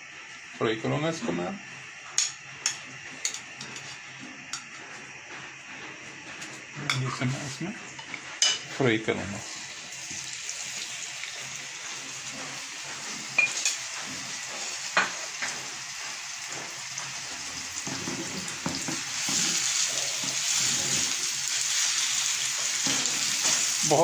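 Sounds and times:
chicken sizzling in hot oil: 0:06.7 - 0:24.0.

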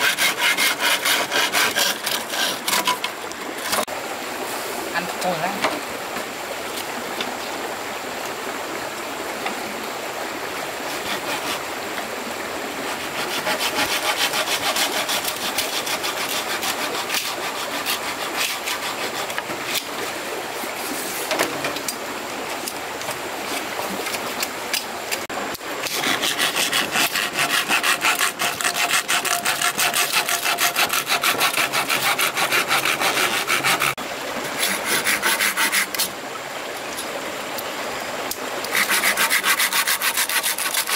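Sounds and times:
hand tool rasping wood: 0:00.0 - 0:03.9, 0:10.9 - 0:11.7, 0:12.8 - 0:19.9, 0:25.8 - 0:36.1, 0:38.7 - 0:40.9.

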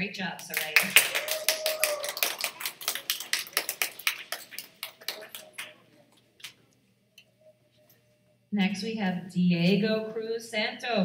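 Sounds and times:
audience applause: 0:00.5 - 0:06.0.

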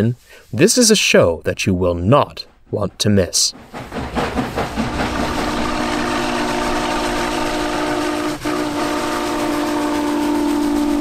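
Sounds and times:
low rumble of locomotive: 0:02.3 - 0:11.0
steam locomotive whistle: 0:05.1 - 0:11.0.

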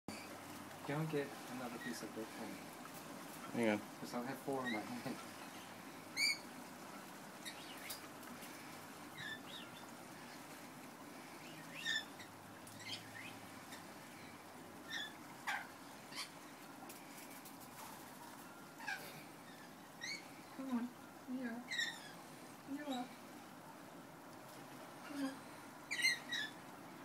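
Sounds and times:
lorikeets chirping and squeaking: 0:00.1 - 0:02.5, 0:03.4 - 0:06.5, 0:07.4 - 0:08.1, 0:09.1 - 0:10.4, 0:11.3 - 0:16.4, 0:18.4 - 0:23.2, 0:25.0 - 0:26.6
faint steady hiss: 0:00.1 - 0:27.0.

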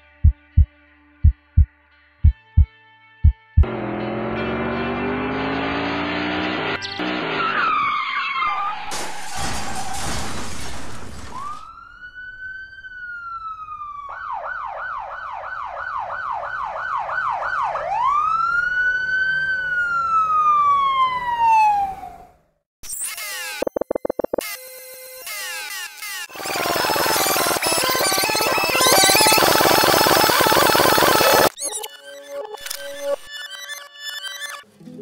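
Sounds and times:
engine revving: 0:03.6 - 0:07.6
tire screech: 0:03.9 - 0:11.6
emergency vehicle siren: 0:06.8 - 0:10.1, 0:11.3 - 0:22.4, 0:26.3 - 0:31.5
crash noise: 0:08.5 - 0:11.7.

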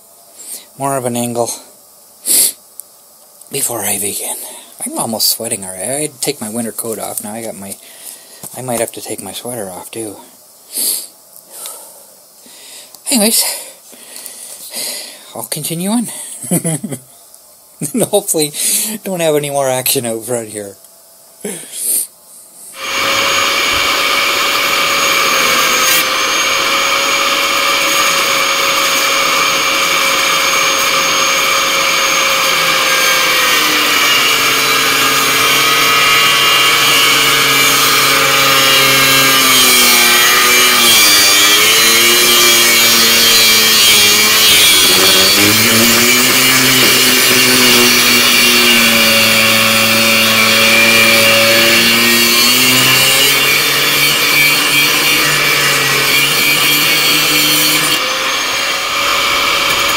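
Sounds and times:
angle grinder cutting steel: 0:22.8 - 0:59.9.

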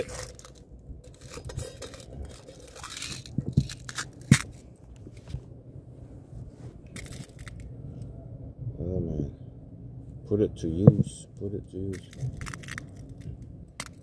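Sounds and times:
metal tin lid scraping and clicking: 0:00.0 - 0:04.4
fingers fiddling in tin: 0:00.0 - 0:04.7, 0:06.9 - 0:07.7, 0:11.9 - 0:14.0.

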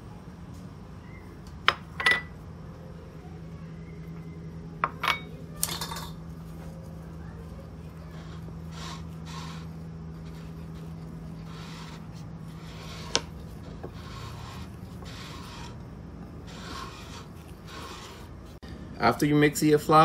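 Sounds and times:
chopsticks stirring flour: 0:05.5 - 0:18.6.

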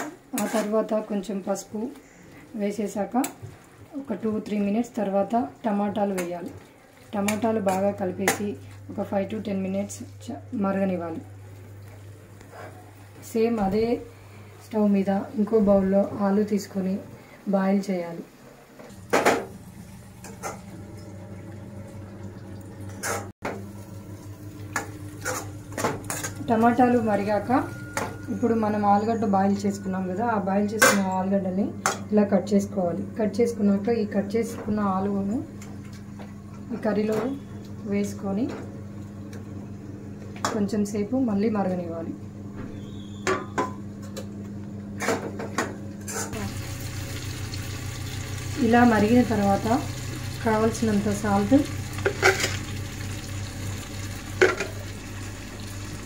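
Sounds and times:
steady low hum: 0:18.2 - 0:56.0
curry simmering hiss: 0:46.4 - 0:56.0.

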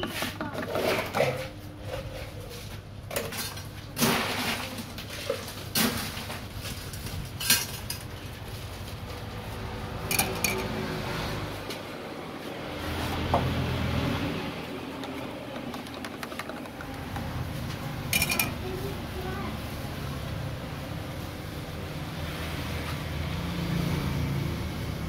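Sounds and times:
spoon clinking bowl and cups: 0:10.1 - 0:10.7, 0:18.1 - 0:18.6.

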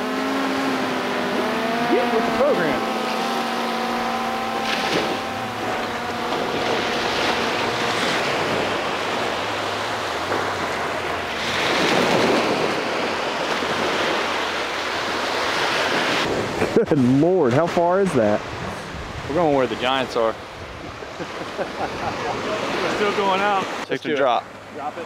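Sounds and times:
faint drone motor whine: 0:00.0 - 0:16.2
surf washing on beach: 0:00.0 - 0:25.0
wind buffeting microphone: 0:00.9 - 0:16.9, 0:18.3 - 0:22.7.

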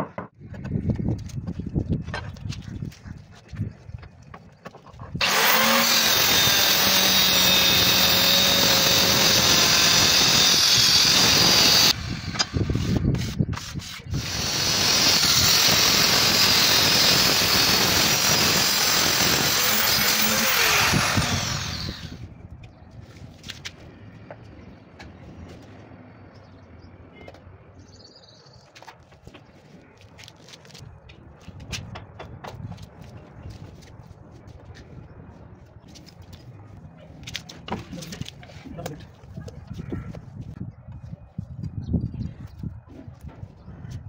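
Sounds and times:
marble cutter grinding whine: 0:05.2 - 0:13.3, 0:14.1 - 0:22.2.

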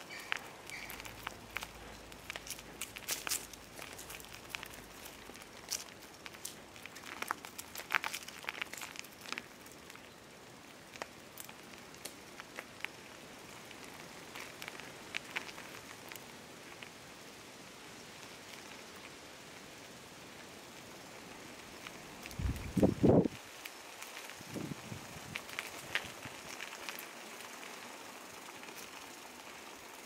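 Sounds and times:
footsteps crunching on gravel: 0:00.0 - 0:17.0, 0:21.7 - 0:27.6
faint steady hiss: 0:00.0 - 0:30.0.

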